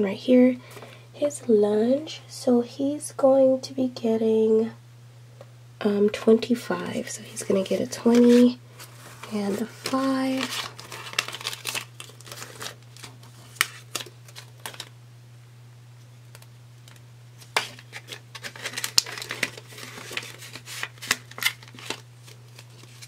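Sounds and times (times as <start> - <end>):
steady low hum: 0.0 - 23.0
paper banknotes rustling: 7.5 - 14.9, 17.4 - 23.0.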